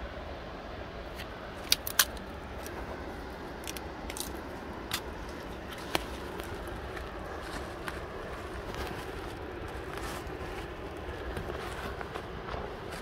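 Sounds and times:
steady rushing background noise: 0.0s - 13.0s
footsteps on rough ground: 4.1s - 13.0s.

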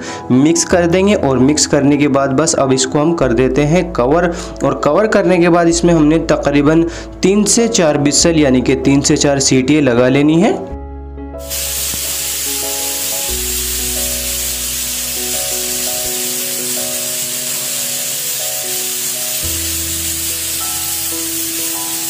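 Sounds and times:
background music: 0.0s - 22.0s
steam hissing from pressure cooker: 11.4s - 22.0s
pressure cooker whistles: 11.5s - 22.0s.

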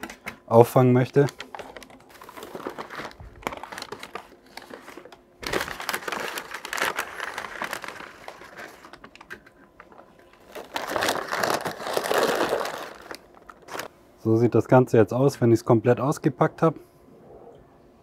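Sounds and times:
paper wrapping crinkling: 1.0s - 13.9s.

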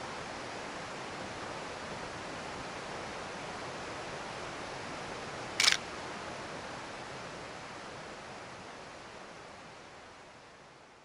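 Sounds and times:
camera shutter click: 5.6s - 5.8s.

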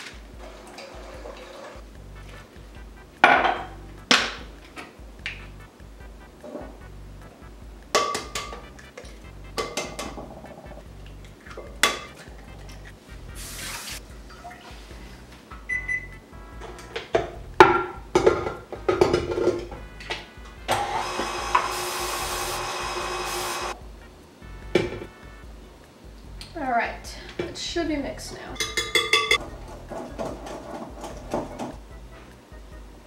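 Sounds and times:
background music: 0.0s - 33.0s
glassware and utensils clattering: 3.2s - 4.3s, 16.6s - 19.8s, 28.6s - 31.8s
aerosol spray hiss: 13.3s - 14.0s, 21.7s - 23.8s
tap running: 18.1s - 23.8s.

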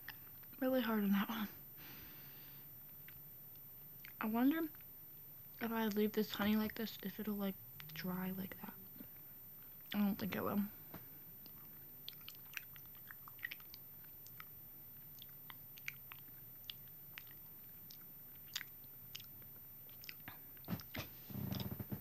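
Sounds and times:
chewing honeycomb: 3.0s - 3.3s, 3.9s - 4.9s, 11.4s - 21.8s.

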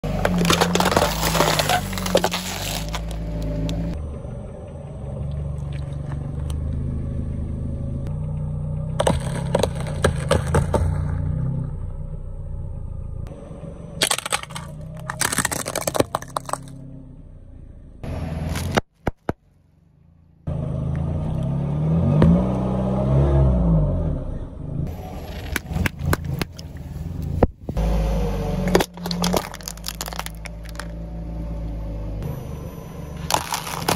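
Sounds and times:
tyre crushing plastic: 0.0s - 3.8s, 14.0s - 16.7s, 28.7s - 30.9s, 33.2s - 33.9s
car engine humming: 0.0s - 33.9s.

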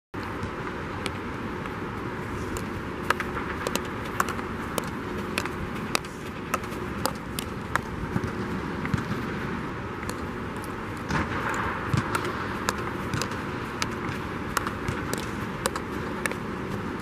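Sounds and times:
steady rushing background noise: 0.2s - 17.0s
hockey stick tapping ball: 2.5s - 9.1s, 10.0s - 17.0s.

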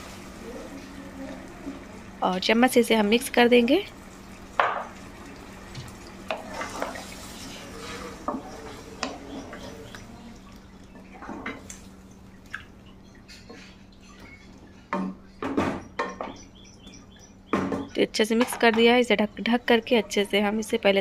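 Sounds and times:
curry sloshing and scraping: 4.9s - 14.9s.

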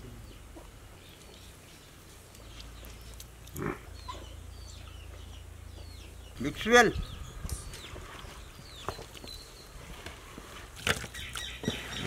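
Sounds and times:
animal grunt: 3.5s - 3.9s.

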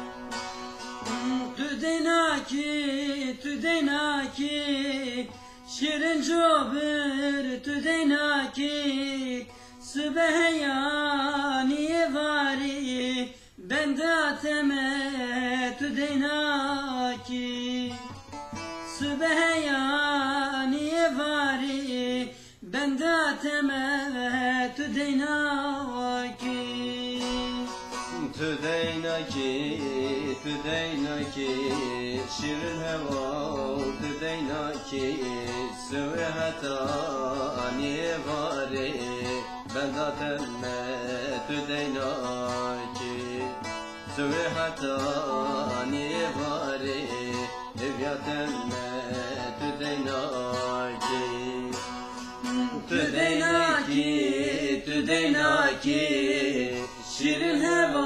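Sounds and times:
fast plucked saz melody: 0.0s - 8.7s, 17.2s - 20.2s, 26.4s - 58.0s.

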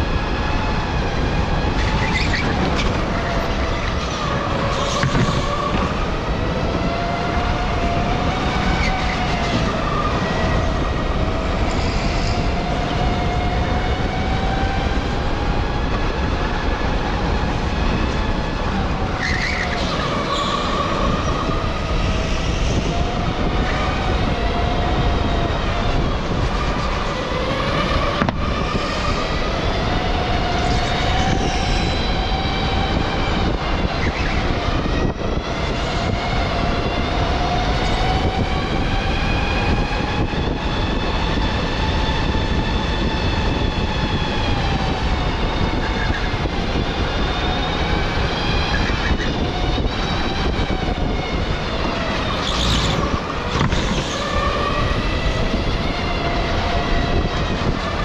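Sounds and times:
tyres and wind rumbling: 0.0s - 58.0s
electric go-kart motor whining: 51.8s - 55.6s.

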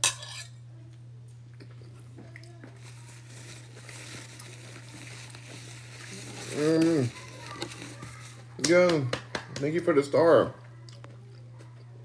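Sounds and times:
person chewing food: 1.5s - 2.8s, 10.8s - 12.0s.

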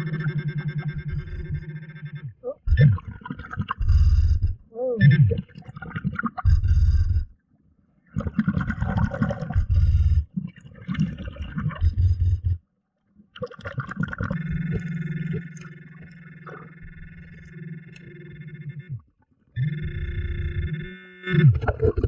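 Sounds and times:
steady buzzing tone: 0.0s - 3.0s, 3.7s - 4.7s, 6.4s - 7.4s, 9.4s - 10.4s, 11.6s - 12.6s, 14.2s - 22.0s
diver exhaling air bubbles underwater: 8.1s - 12.6s, 13.4s - 16.8s, 21.5s - 22.0s.

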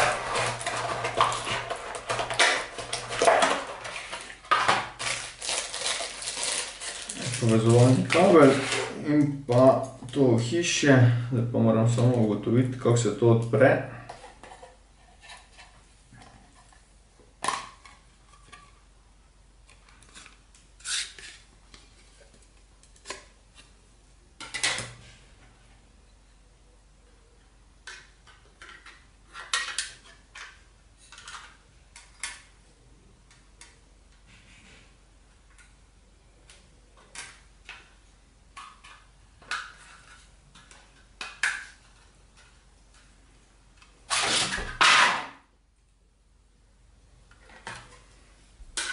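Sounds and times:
plastic scraping: 0.0s - 9.0s, 44.1s - 45.3s.

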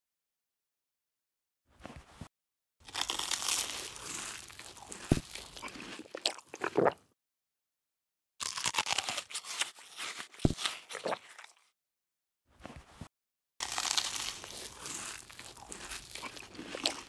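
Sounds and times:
crunching and chewing apple: 2.8s - 7.0s, 8.4s - 11.8s, 13.6s - 17.0s.

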